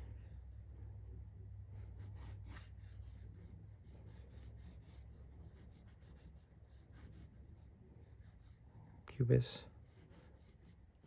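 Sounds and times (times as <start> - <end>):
low steady hum: 0.0 - 11.0
pencil scratching on paper: 1.7 - 8.6, 9.7 - 11.0.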